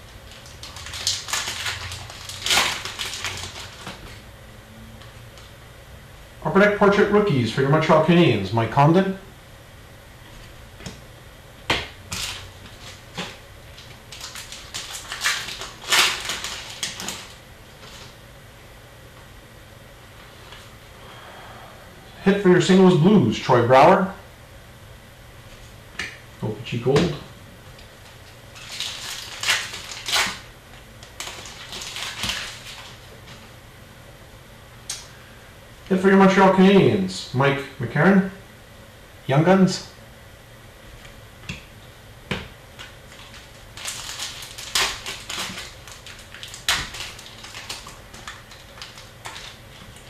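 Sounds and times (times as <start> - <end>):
wrapper crinkling and tearing: 0.0 - 4.2, 12.1 - 18.2, 28.0 - 33.5, 42.8 - 50.0.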